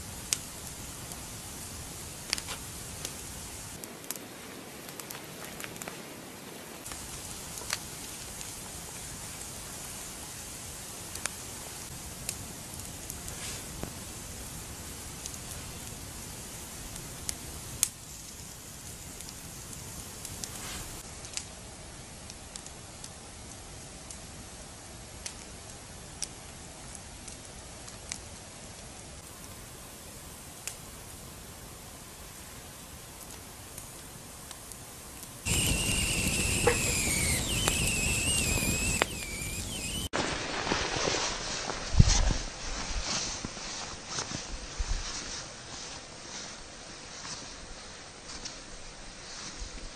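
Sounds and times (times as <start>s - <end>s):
campfire crackling and popping: 0.0s - 42.1s
steam whistling from wood: 35.5s - 40.2s.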